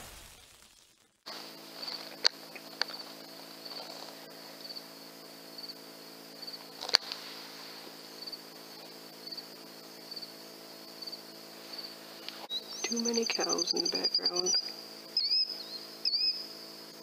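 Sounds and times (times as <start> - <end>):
crickets chirping: 1.3 - 17.0
low steady hum: 1.3 - 17.0.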